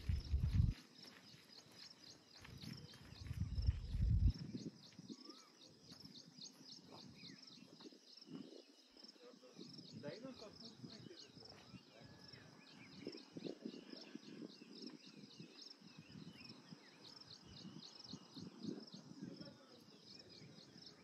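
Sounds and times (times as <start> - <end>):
soft whistled calls: 4.6 - 21.0.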